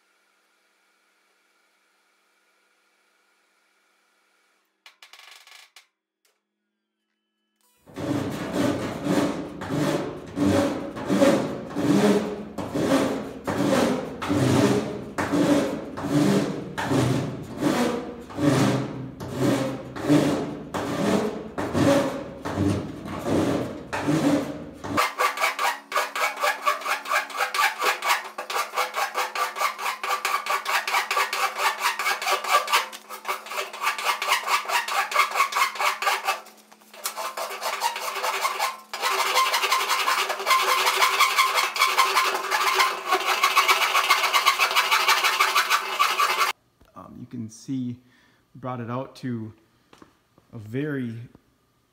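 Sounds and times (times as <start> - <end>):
file rasping on metal: 8.0 - 46.6.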